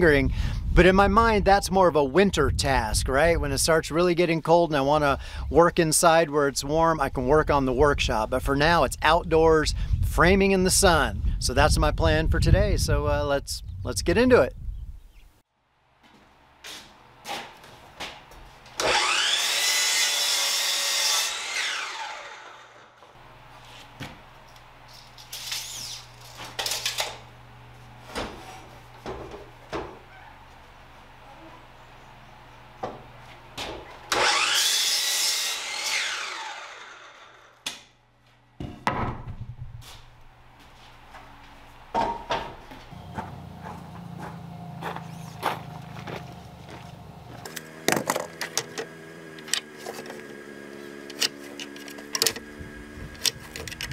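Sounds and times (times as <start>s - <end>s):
saw cutting through wood: 18.7s - 23.8s, 33.9s - 37.6s
miter saw motor whine: 18.8s - 23.8s, 34.0s - 37.6s, 42.9s - 53.9s
wooden board clattering: 47.8s - 48.8s.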